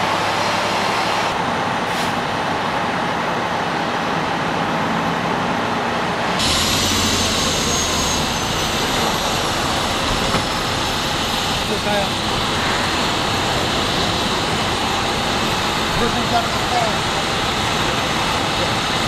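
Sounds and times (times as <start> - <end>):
fire truck engine idling: 0.0 - 19.0
high-pitched whine: 6.2 - 19.0.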